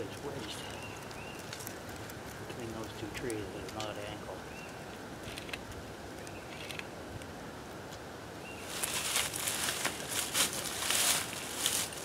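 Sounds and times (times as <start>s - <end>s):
footsteps on dry leaves: 8.6s - 12.0s.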